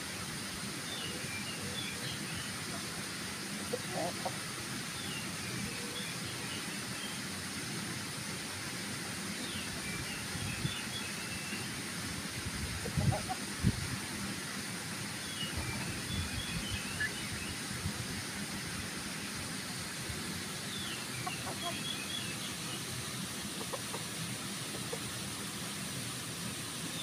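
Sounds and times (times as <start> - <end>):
roosters clucking: 3.6 - 4.5, 12.7 - 13.5, 20.8 - 25.4.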